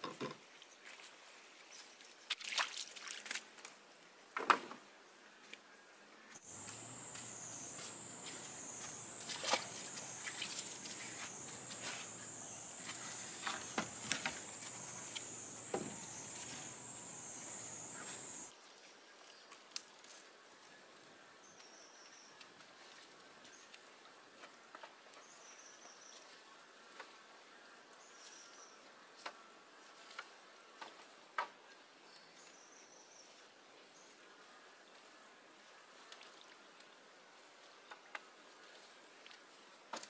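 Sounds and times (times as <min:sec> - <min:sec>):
forest ambience: 0:00.0 - 0:19.5
insects droning: 0:04.2 - 0:18.5.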